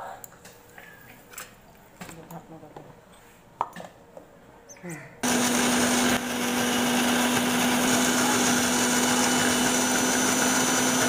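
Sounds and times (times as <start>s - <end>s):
electric mixer grinder running: 5.2s - 11.0s.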